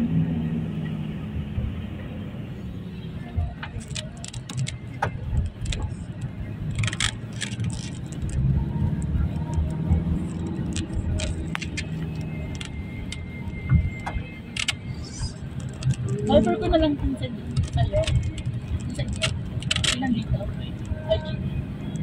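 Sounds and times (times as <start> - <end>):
vehicle engine rumbling: 0.0 - 22.0
light clicks and rattles: 3.6 - 16.3, 17.5 - 21.0.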